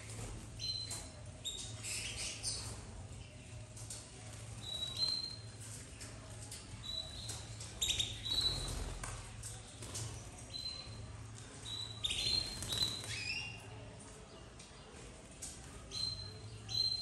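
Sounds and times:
soft clicks of birds hopping: 3.5s - 16.1s
canaries calling: 4.6s - 5.6s, 6.8s - 9.0s, 10.4s - 13.6s.

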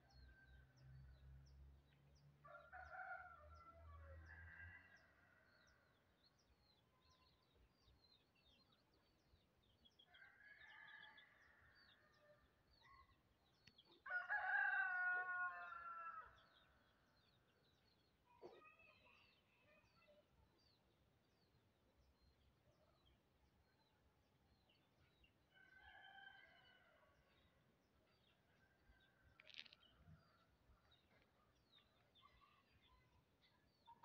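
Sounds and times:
rooster crowing: 14.1s - 16.2s.

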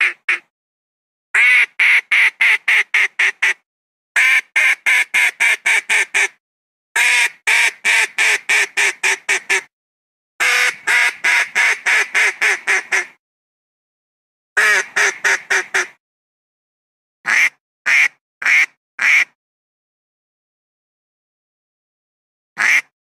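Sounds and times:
duck call quacking: 0.0s - 0.5s, 1.4s - 3.6s, 4.2s - 6.4s, 7.0s - 9.7s, 10.4s - 13.2s, 14.6s - 16.0s, 17.3s - 19.4s, 22.6s - 22.9s.

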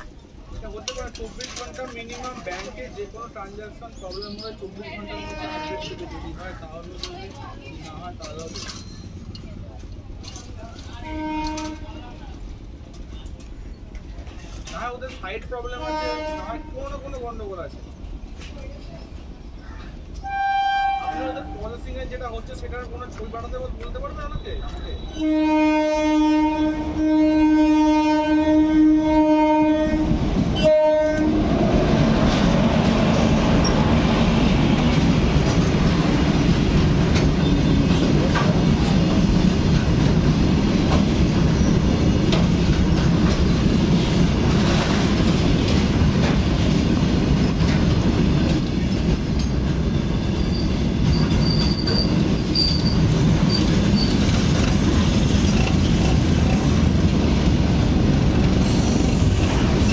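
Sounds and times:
freight wagons rolling on rails: 0.0s - 20.3s, 29.9s - 59.9s
locomotive horn blasts: 5.0s - 6.1s, 11.0s - 12.0s, 15.8s - 16.8s, 20.2s - 21.6s, 25.1s - 31.4s
high wheel squeals: 41.4s - 42.4s, 49.4s - 54.5s.

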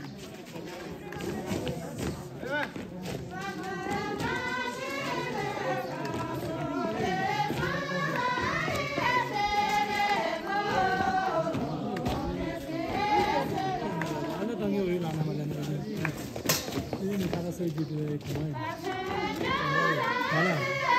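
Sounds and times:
group of voices singing: 3.0s - 16.2s, 18.3s - 20.9s.

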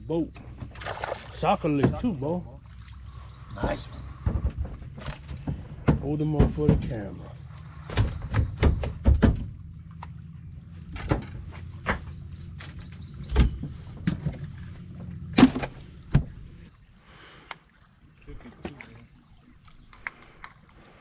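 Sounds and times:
knocks and clunks on boat: 0.3s - 2.4s, 3.1s - 16.7s.

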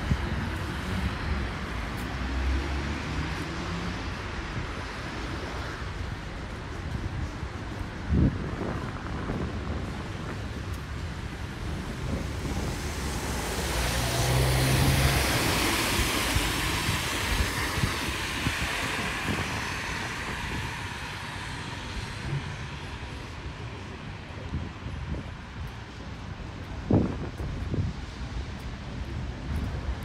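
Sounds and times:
car passing on wet road: 0.0s - 6.2s, 8.4s - 26.0s.

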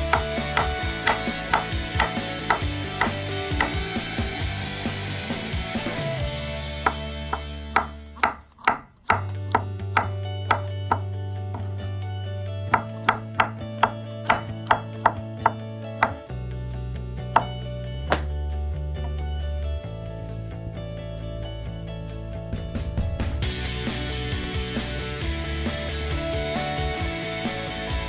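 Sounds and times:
knife chopping on wooden board: 0.1s - 3.8s, 6.8s - 11.8s, 12.7s - 16.2s, 17.3s - 18.3s.

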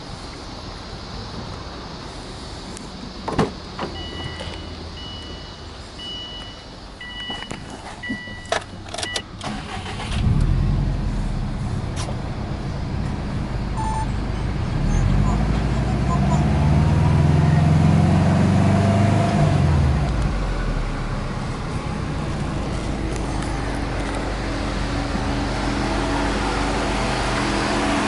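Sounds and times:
car engine starting and idling: 2.2s - 28.0s
electronic warning chime: 13.8s - 14.5s.

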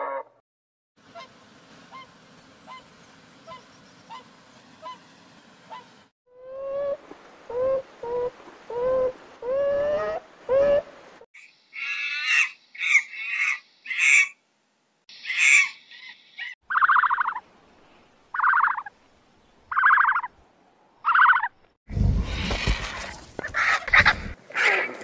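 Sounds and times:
monkey screeching: 15.2s - 17.3s.

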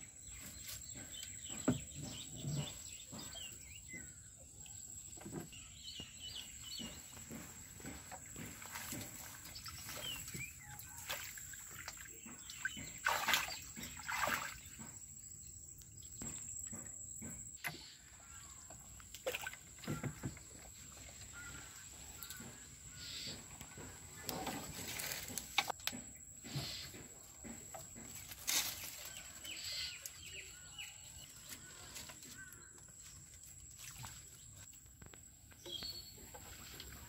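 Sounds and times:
water splashing: 7.8s - 15.0s, 19.0s - 22.4s.

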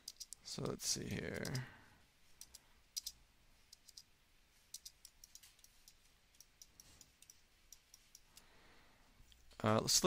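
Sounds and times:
computer mouse clicks: 0.0s - 1.7s, 2.4s - 4.1s, 4.7s - 8.5s
low hiss: 0.0s - 10.0s.

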